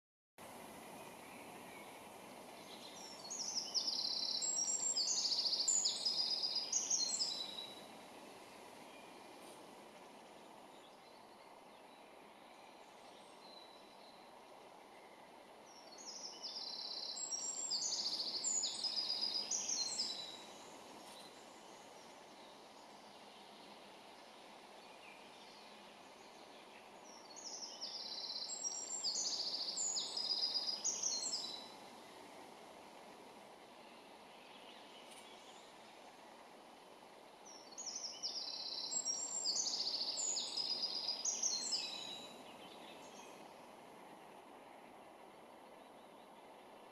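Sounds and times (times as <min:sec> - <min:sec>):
low background noise: 0:00.4 - 0:46.9
wren singing trills: 0:02.6 - 0:07.9, 0:15.2 - 0:22.9, 0:25.0 - 0:31.8, 0:37.4 - 0:43.7.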